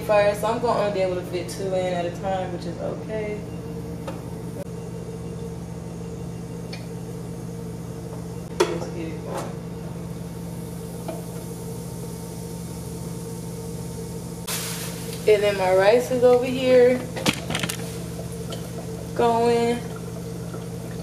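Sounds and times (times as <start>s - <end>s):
fryer low hum: 0.0s - 21.0s
food sizzling in oil: 10.1s - 20.8s.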